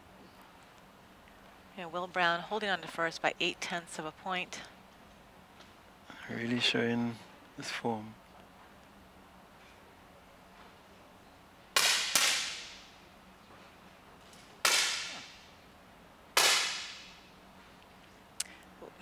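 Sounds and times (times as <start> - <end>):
air pistol shots: 11.8 - 12.9, 14.6 - 15.5, 16.4 - 17.2.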